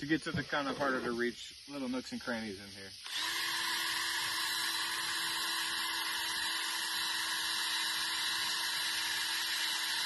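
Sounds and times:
cordless drill motor whine: 3.0s - 10.0s.

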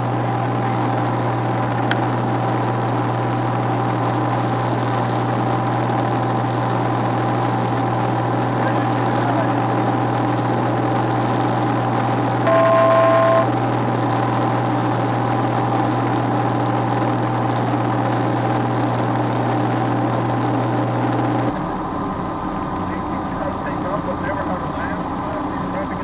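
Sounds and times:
propeller aircraft engine droning: 0.0s - 26.0s
two-tone electronic beep: 12.5s - 13.5s.

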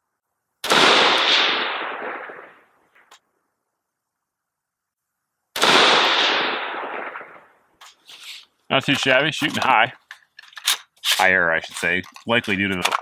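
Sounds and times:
gunshot echo: 0.6s - 2.7s, 5.6s - 7.6s
rifle shot: 0.6s - 2.7s, 5.6s - 7.6s.

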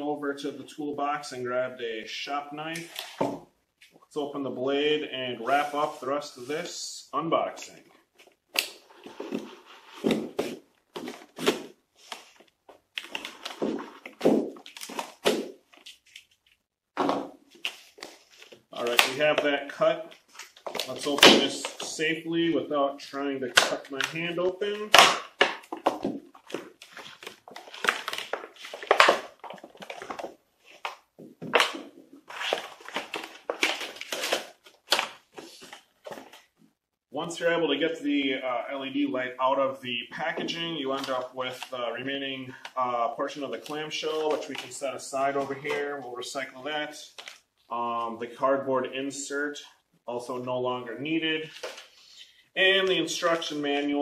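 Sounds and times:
plastic packaging crackling: 23.5s - 36.2s.

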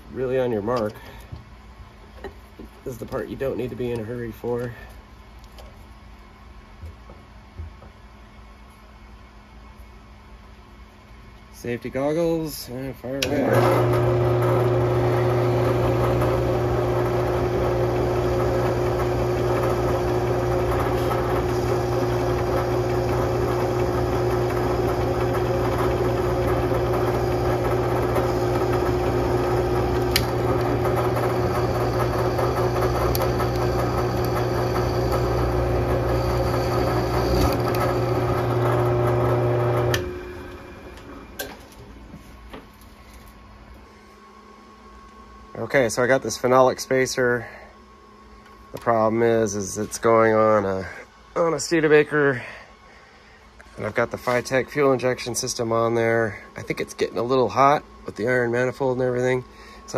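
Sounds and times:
drill press motor running: 13.2s - 41.8s.

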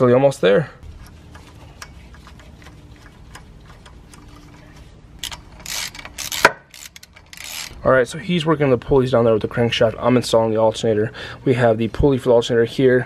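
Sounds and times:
ratchet wrench clicking: 0.9s - 4.6s, 5.2s - 7.8s.

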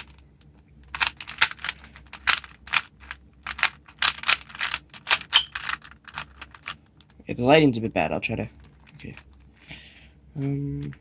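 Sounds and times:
puzzle cube clicking as layers turn: 0.8s - 7.2s.

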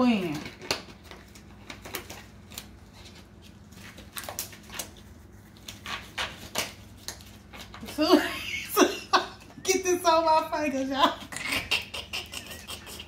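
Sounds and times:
disposable gloves rustling: 0.0s - 8.3s.

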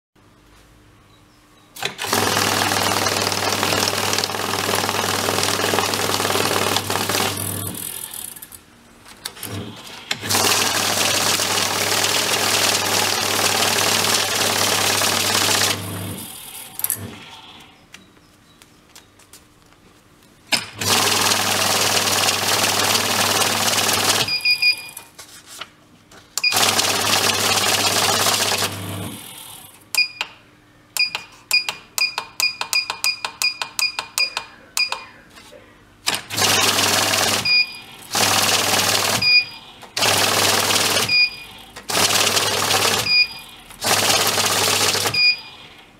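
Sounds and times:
bill counter counting banknotes: 1.8s - 8.5s, 9.3s - 17.3s, 20.6s - 25.1s, 26.4s - 29.7s, 36.1s - 45.6s
control-panel buttons pressed: 31.0s - 35.1s.

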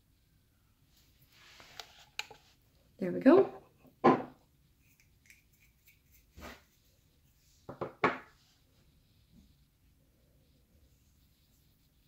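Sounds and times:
knocks and rubbing: 3.4s - 4.4s, 7.7s - 8.4s.

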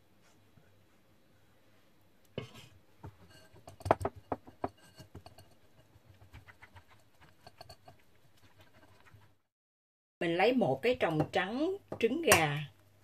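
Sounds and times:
spatula scraping metal sieve: 4.6s - 9.2s.

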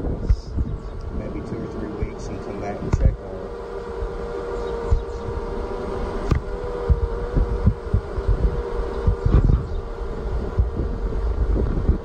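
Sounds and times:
bees humming in a hive: 0.0s - 12.0s
low thumps on microphone: 4.8s - 5.2s, 6.2s - 9.8s.

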